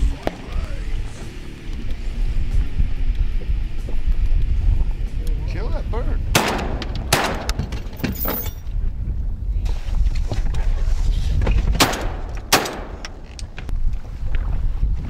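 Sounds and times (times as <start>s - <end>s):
shotgun shots: 6.3s - 7.6s, 11.8s - 13.1s.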